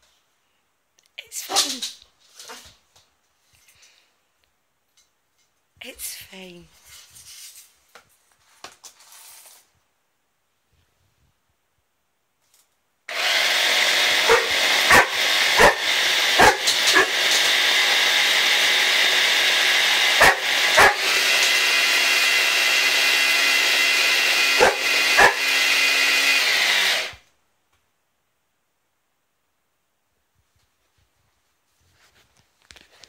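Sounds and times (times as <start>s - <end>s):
electric blender running: 13.1s - 27.2s
dog barking: 14.2s - 17.2s, 20.2s - 21.0s, 24.6s - 25.4s.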